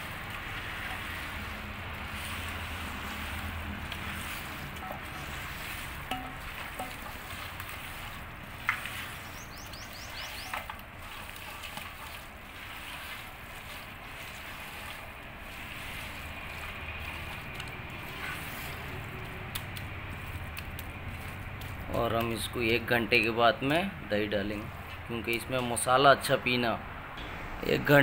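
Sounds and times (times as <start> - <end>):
wet squishing of marinated meat: 0.0 - 23.3
meat knocking against metal pan: 6.1 - 7.3.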